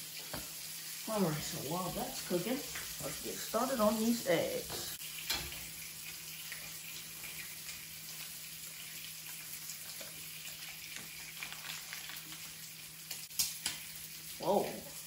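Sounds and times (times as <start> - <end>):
bacon sizzling in a pan: 0.0 - 15.0
grease spitting crackles: 6.1 - 14.0.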